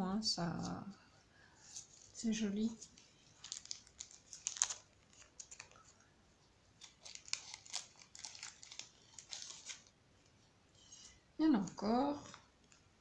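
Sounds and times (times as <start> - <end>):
plastic packaging crinkling: 1.7 - 6.0, 6.8 - 9.9.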